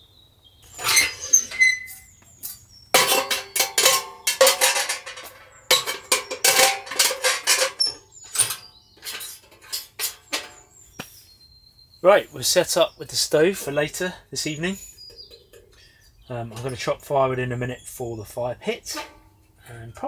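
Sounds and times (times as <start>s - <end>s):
metal stove parts clanking: 0.7s - 10.8s, 16.4s - 16.9s, 18.9s - 19.5s.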